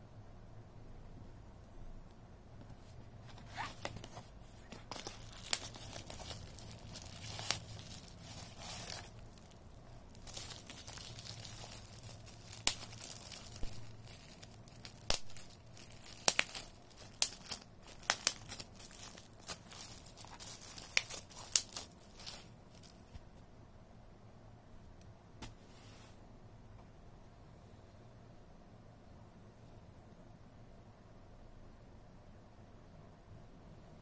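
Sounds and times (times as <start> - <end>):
bubble wrap crinkling: 2.8 - 23.3.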